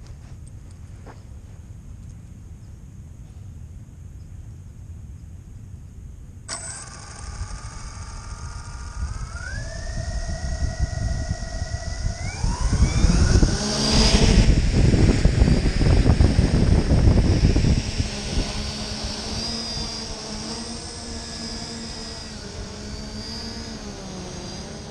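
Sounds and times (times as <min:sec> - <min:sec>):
drone motors whining: 0:06.5 - 0:24.9.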